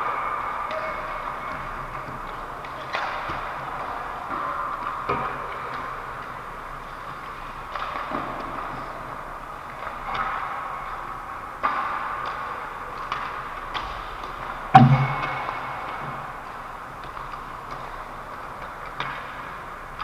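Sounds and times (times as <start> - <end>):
hockey sticks and puck clacking: 0.0 - 20.0
skate blades on ice: 0.0 - 20.0
loud ringing knock: 14.8 - 15.5.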